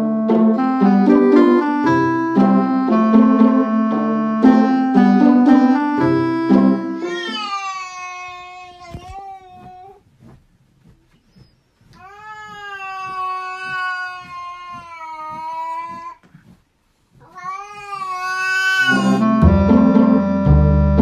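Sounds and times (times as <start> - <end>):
music: 0.0 - 7.1, 18.9 - 21.0.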